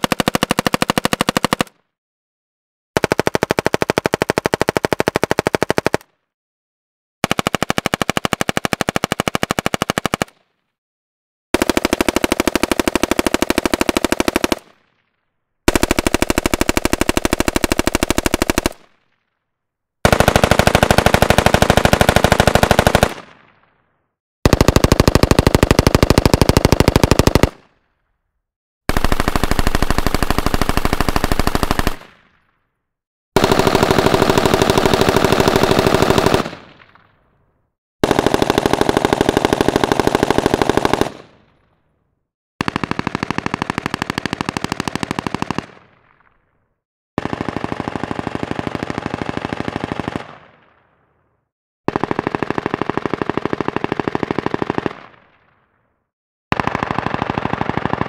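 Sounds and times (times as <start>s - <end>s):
rifle full-auto bursts: 0.0s - 1.8s, 3.0s - 6.1s, 7.2s - 10.4s, 11.6s - 14.8s, 15.7s - 19.0s, 20.0s - 23.3s, 24.5s - 27.7s, 28.9s - 32.1s, 33.4s - 36.7s, 38.0s - 41.3s, 42.6s - 45.8s, 47.2s - 50.4s, 51.9s - 55.1s, 56.5s - 58.0s.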